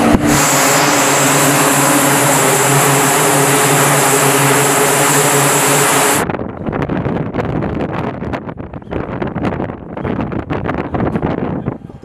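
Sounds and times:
turboprop engines droning: 0.0s - 6.3s.

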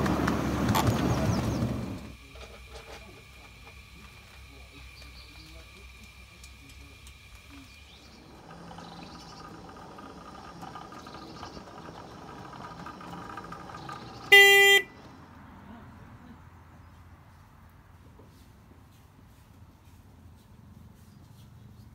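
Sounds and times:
miniature train electric hum: 0.0s - 16.4s
train horn toot: 14.3s - 14.9s.

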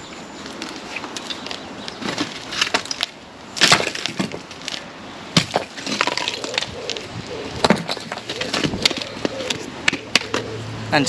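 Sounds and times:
bricks knocking together: 5.4s - 6.8s, 7.6s - 10.4s.

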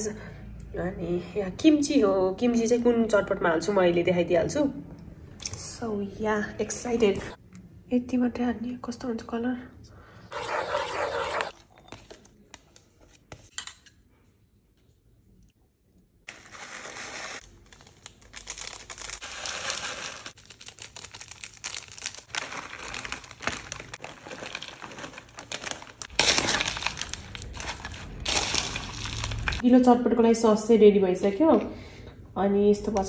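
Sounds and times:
snack packets crinkling: 16.3s - 29.6s
dry snacks falling into plastic bowl: 22.4s - 29.6s.

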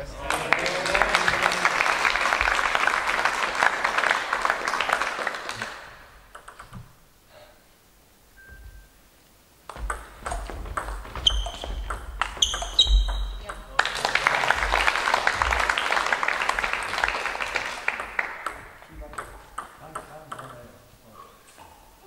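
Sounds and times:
spectators applauding: 0.0s - 6.2s, 13.7s - 18.9s
table tennis ball clicking: 6.3s - 6.9s, 9.7s - 13.7s, 18.0s - 20.6s
footwork thuds on floor: 9.7s - 13.5s.

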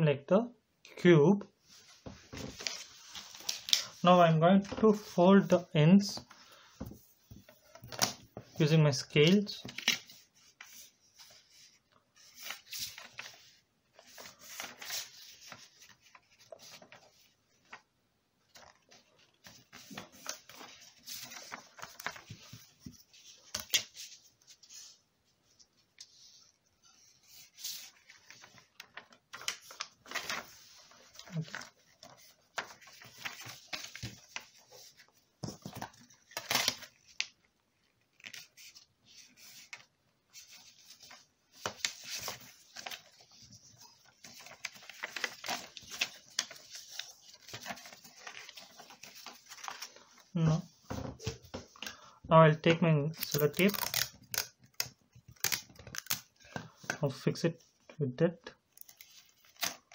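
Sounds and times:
paper rustling and creasing: 1.6s - 52.0s, 53.2s - 57.9s, 58.6s - 59.9s.

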